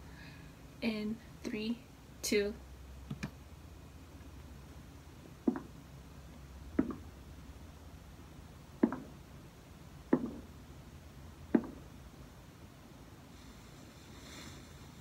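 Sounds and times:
faint low background noise: 0.0s - 15.0s
sharp knocks: 5.5s - 5.7s, 6.8s - 7.1s, 8.8s - 9.1s, 10.1s - 10.4s, 11.5s - 11.8s.

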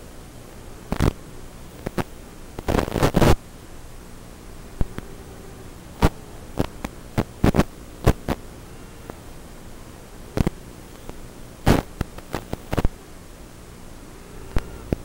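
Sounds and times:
electrical hum and static: 0.0s - 15.0s
crackling pops: 0.9s - 3.4s, 6.0s - 8.5s, 10.4s - 13.0s.

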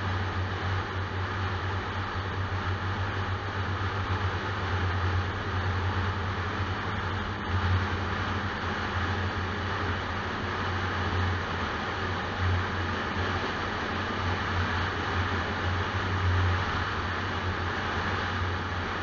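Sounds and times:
car engine drone: 0.0s - 19.0s.

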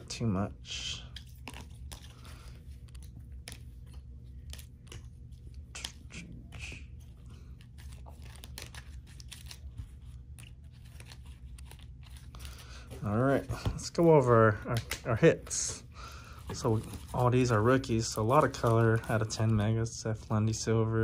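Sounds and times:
low steady hum: 0.0s - 21.0s
plastic card sleeves clicking: 7.7s - 9.7s
crinkly plastic rustles: 16.4s - 20.3s.

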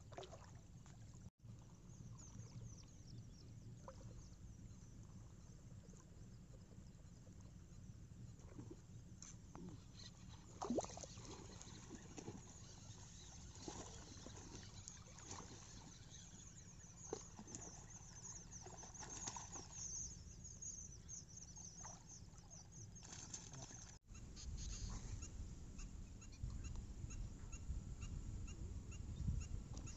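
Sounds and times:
soft water splashes: 0.0s - 2.7s, 10.4s - 20.1s, 21.6s - 24.0s.

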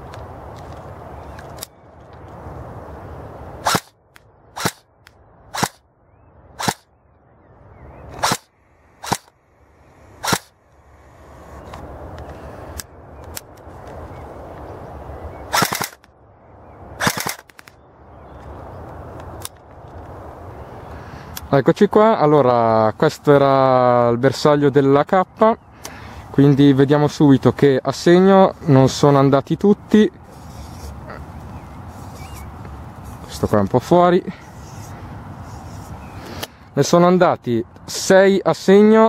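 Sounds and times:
airsoft rifle shots: 3.6s - 3.9s, 4.5s - 4.8s, 5.5s - 5.8s, 6.6s - 6.9s, 8.2s - 9.3s, 10.2s - 10.6s, 15.5s - 16.0s, 17.0s - 17.7s
full-auto gun bursts: 15.5s - 16.0s, 17.0s - 17.4s.

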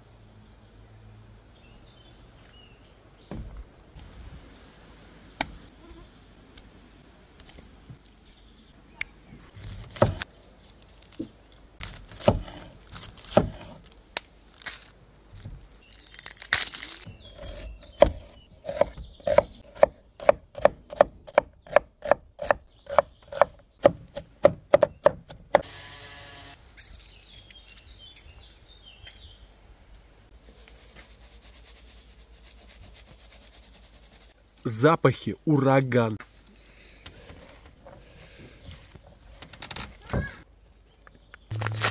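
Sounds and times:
knife chopping on wooden board: 9.9s - 10.2s, 13.3s - 13.7s, 17.4s - 25.6s.

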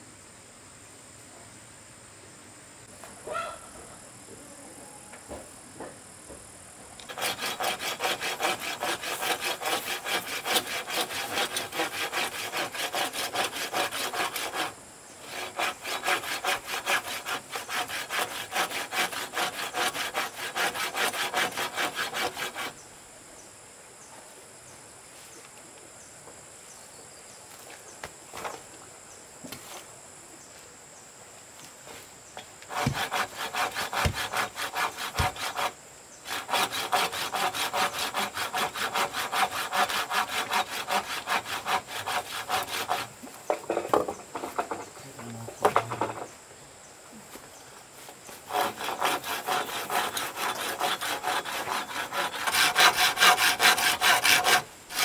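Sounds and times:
saw cutting bamboo: 7.0s - 22.8s, 32.6s - 43.2s, 48.3s - 55.0s.

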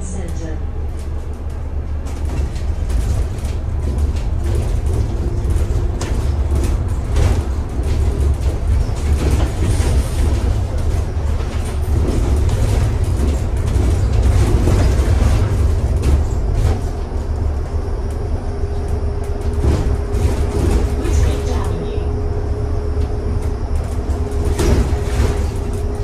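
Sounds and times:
bus engine and road rumble: 0.0s - 26.0s
rattles and knocks from bus body: 0.3s - 26.0s.

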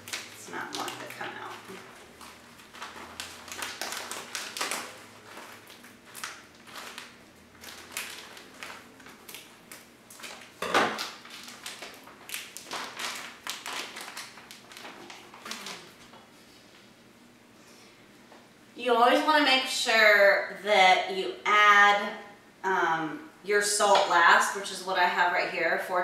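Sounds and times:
plastic bag crinkling: 0.0s - 16.3s.

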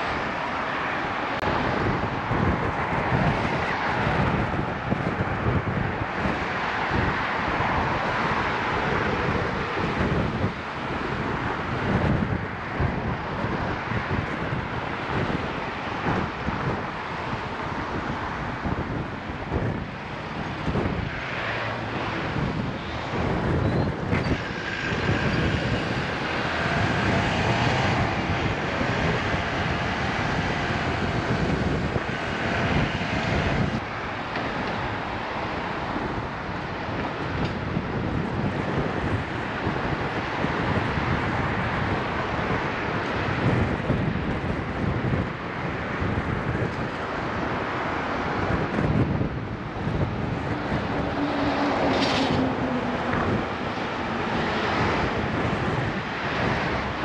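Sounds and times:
passing vehicle hum: 0.0s - 57.0s
vehicles going by: 0.0s - 57.0s
wind rushing over microphone: 0.0s - 57.0s.

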